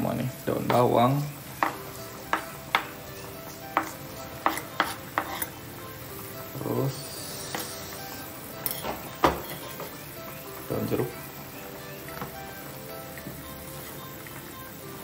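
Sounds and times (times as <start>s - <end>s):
knife scraping cutting board: 3.8s - 5.5s.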